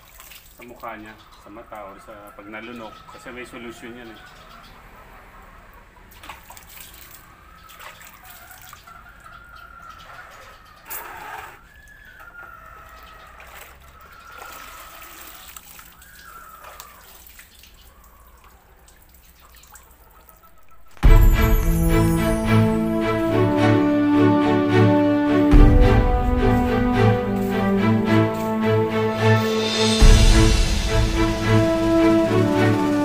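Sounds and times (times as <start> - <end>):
water splash: 0.0 - 0.8, 20.9 - 23.5, 25.5 - 33.0
water sloshing and dripping: 0.0 - 3.2, 6.0 - 23.1
distant roosters crowing: 1.3 - 17.2, 19.8 - 33.0
music: 21.0 - 33.0.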